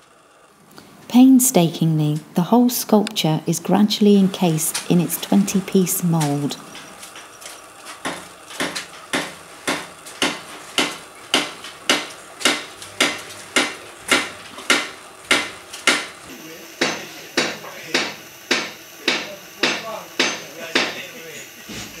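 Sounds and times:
hammer blows clinking: 16.8s - 21.1s.

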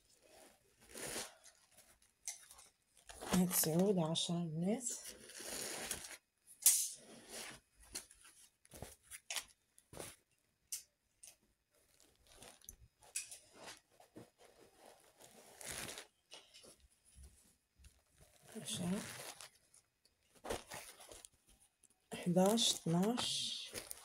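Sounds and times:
fabric rustling: 7.0s - 10.3s, 11.7s - 24.0s.

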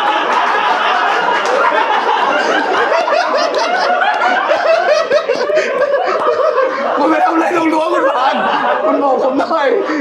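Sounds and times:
group of people laughing: 0.0s - 10.0s.

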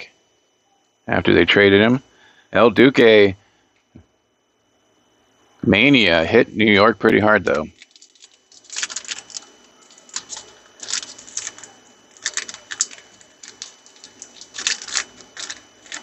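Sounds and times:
foil wrapper crinkling: 7.4s - 16.0s.

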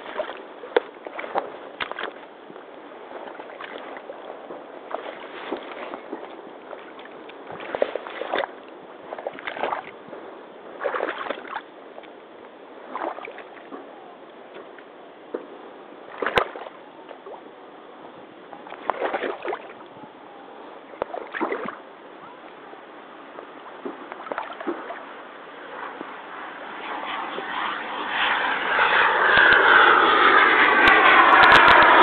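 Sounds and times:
boots sloshing through water: 0.0s - 2.4s, 3.0s - 10.0s, 10.8s - 11.7s, 12.8s - 13.9s, 16.1s - 17.4s, 18.6s - 19.9s, 20.9s - 21.8s, 23.8s - 26.2s
sharp crack: 28.4s - 32.0s.

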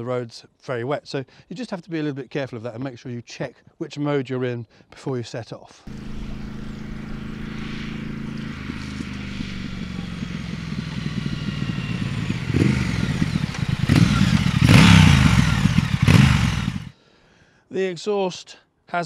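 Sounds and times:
motorcycle passing by: 5.9s - 16.9s.

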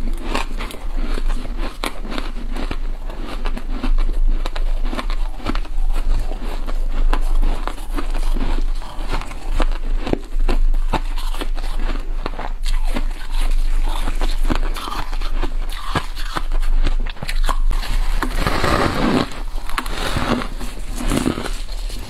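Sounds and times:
biting and chewing frost crunches: 0.0s - 22.0s.

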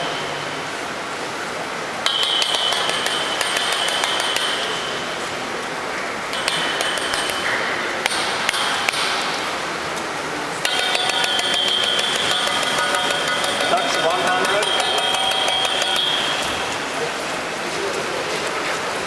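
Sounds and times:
high steady tone: 10.6s - 17.2s.

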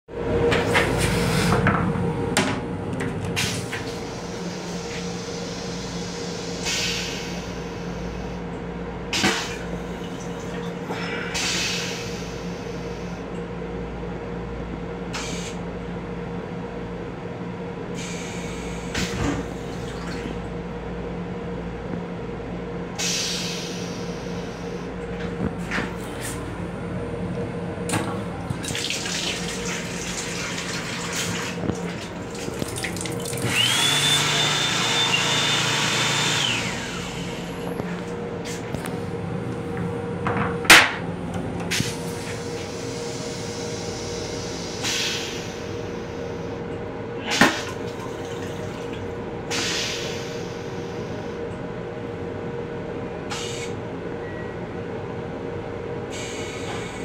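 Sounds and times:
railcar steady hum: 0.1s - 33.7s, 36.4s - 57.0s
faucet water splashing into basin: 28.6s - 33.6s.

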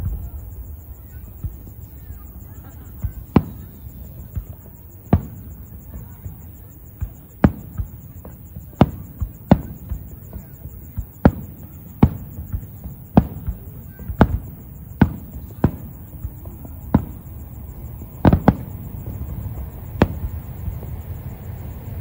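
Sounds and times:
fireworks booming: 0.0s - 22.0s.

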